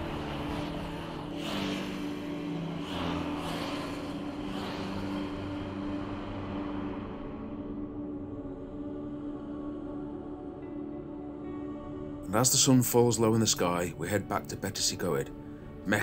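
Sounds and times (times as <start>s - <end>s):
motorcycles passing by: 0.0s - 8.1s.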